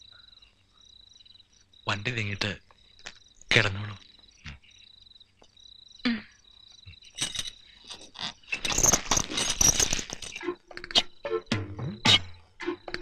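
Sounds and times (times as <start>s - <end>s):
crickets chirping: 0.0s - 13.0s
rustling and clattering: 6.8s - 10.8s.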